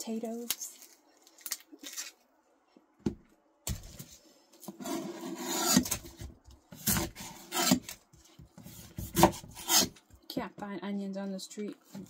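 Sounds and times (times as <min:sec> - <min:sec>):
knife sawing through onion: 0:04.8 - 0:06.0, 0:06.8 - 0:07.9, 0:08.7 - 0:10.0.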